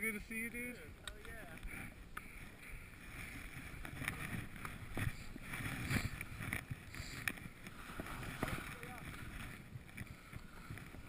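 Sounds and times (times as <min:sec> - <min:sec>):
wind on microphone: 0:01.6 - 0:11.0
skis swishing through snow: 0:02.4 - 0:11.0.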